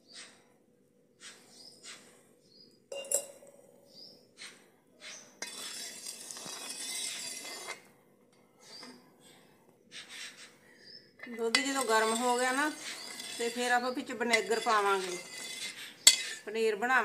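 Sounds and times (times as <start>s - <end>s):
metal ladle clinking on pan: 2.9s - 3.5s, 11.5s - 13.6s, 14.2s - 16.4s
ladle scraping round pan: 5.4s - 7.9s, 11.4s - 16.5s.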